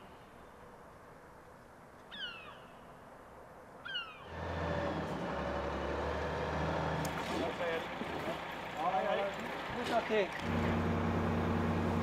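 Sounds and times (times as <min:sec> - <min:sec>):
truck engine driving: 0:04.3 - 0:12.0.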